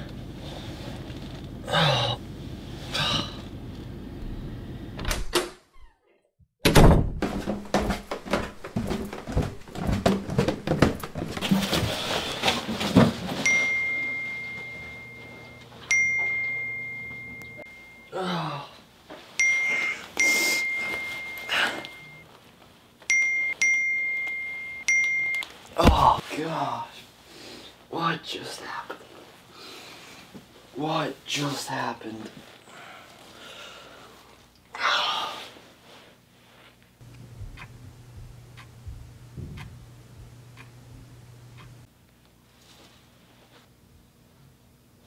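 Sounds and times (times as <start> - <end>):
knocks and thuds: 6.6 - 12.1, 25.8 - 26.2, 38.9 - 39.8.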